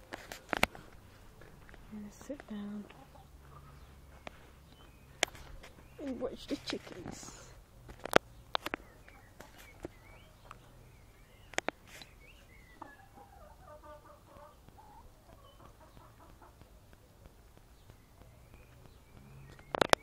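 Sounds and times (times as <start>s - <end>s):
hens clucking: 0.1s - 7.7s, 11.5s - 20.0s
sharp clicks: 11.4s - 12.1s, 14.4s - 20.0s.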